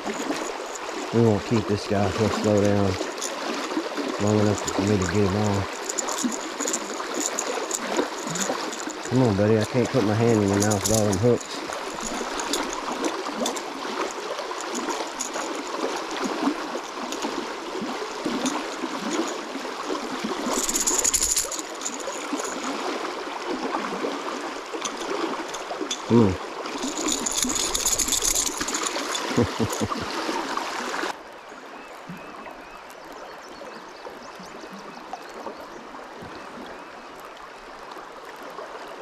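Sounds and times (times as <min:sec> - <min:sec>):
fish splashing at surface: 0:00.0 - 0:31.2
river current rushing: 0:00.0 - 0:31.2.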